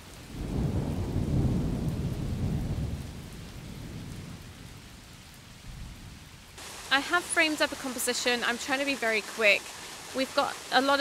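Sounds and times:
falling rain hiss: 0:00.0 - 0:11.0
low roll of thunder: 0:00.2 - 0:06.5.

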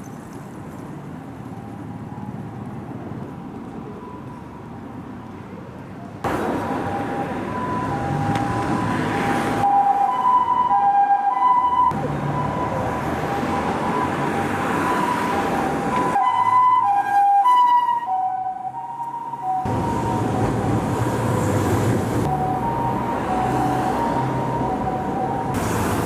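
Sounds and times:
street traffic noise: 0:00.0 - 0:26.0
ambulance two-tone siren: 0:06.5 - 0:21.0, 0:22.2 - 0:25.6.

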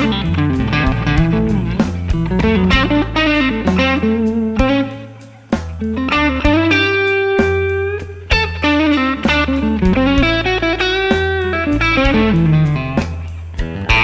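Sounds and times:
bass and drums: 0:00.0 - 0:14.0
electric guitar blues solo: 0:00.0 - 0:14.0.

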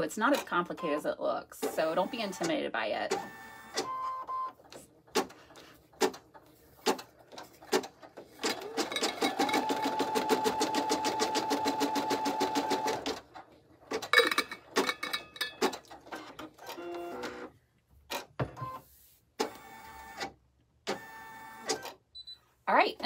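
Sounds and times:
embroidery machine stitching: 0:06.8 - 0:14.1.

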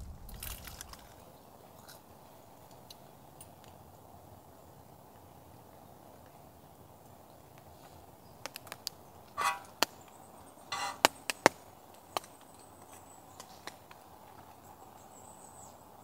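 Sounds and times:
faint steady hiss: 0:00.0 - 0:16.0
scraping: 0:09.4 - 0:09.9, 0:10.7 - 0:11.1.

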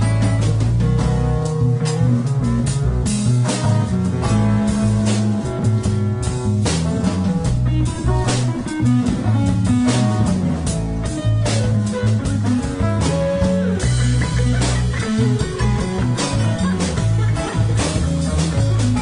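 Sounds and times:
drum kit: 0:00.0 - 0:19.0
electric bass: 0:00.0 - 0:19.0
electric lead guitar: 0:00.0 - 0:19.0
strummed acoustic guitar: 0:06.6 - 0:19.0.

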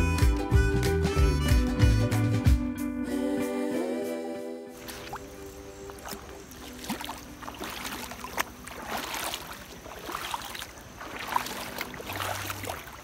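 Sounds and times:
stream trickling over pebbles: 0:04.8 - 0:13.0.

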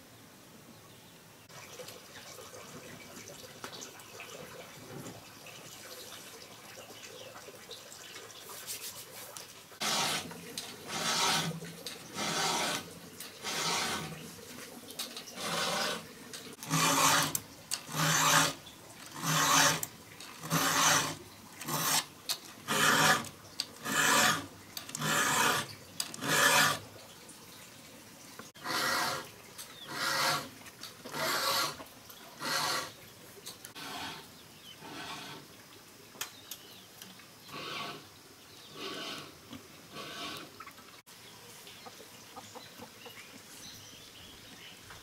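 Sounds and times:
hand tool rasping wood: 0:09.8 - 0:14.2, 0:15.4 - 0:26.8, 0:28.6 - 0:29.3, 0:29.9 - 0:31.8, 0:32.4 - 0:33.0, 0:33.7 - 0:35.4, 0:38.7 - 0:40.5.

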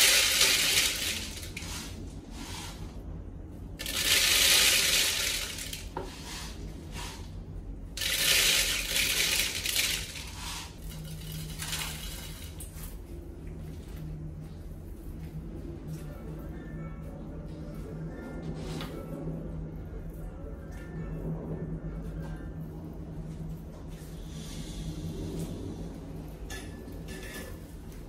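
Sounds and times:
grain pouring into plastic jug: 0:00.0 - 0:02.5, 0:03.8 - 0:06.6, 0:08.0 - 0:12.8.

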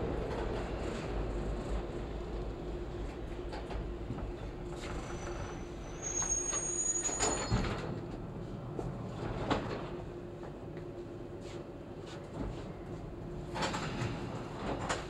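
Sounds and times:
subway train hum and rumble: 0:00.0 - 0:15.0
braking wheels squealing: 0:04.8 - 0:07.6.

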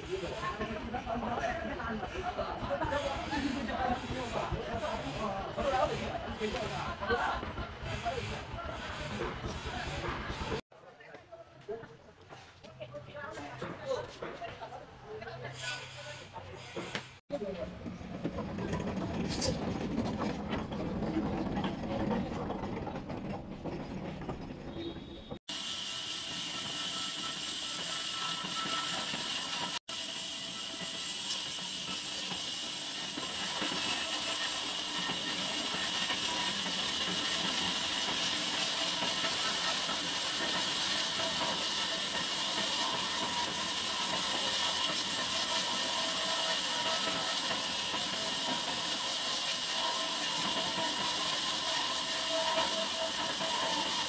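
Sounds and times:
band saw blade cutting log: 0:30.8 - 0:54.0.

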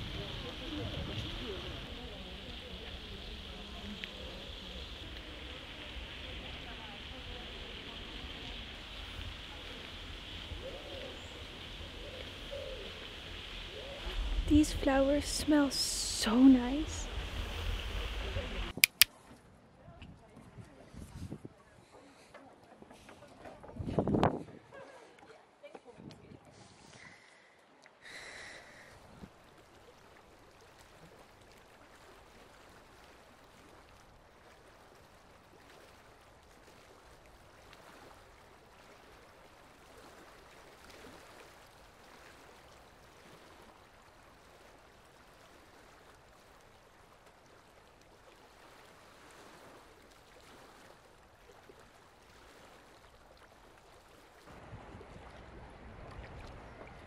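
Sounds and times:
low rush of noise: 0:00.0 - 0:18.8
sea water lapping: 0:00.0 - 0:19.5, 0:24.6 - 0:57.0
soft splashes: 0:28.6 - 0:57.0.

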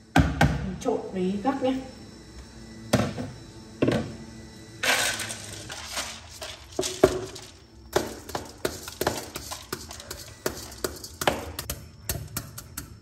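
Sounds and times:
rice grains sliding out: 0:04.8 - 0:07.6.

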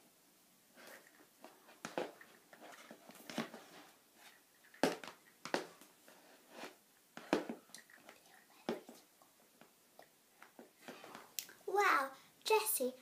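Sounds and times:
doll feet tapping on wooden floor: 0:04.8 - 0:05.9.

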